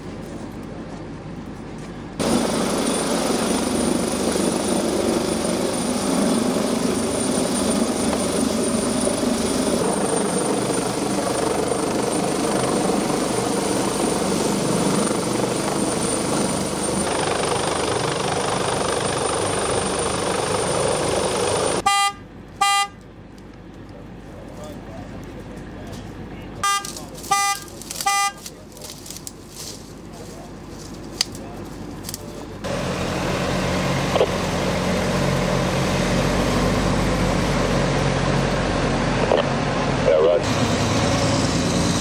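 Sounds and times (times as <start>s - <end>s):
helicopter hovering: 2.1s - 22.5s, 30.0s - 42.0s
short horn toots: 26.6s - 28.4s.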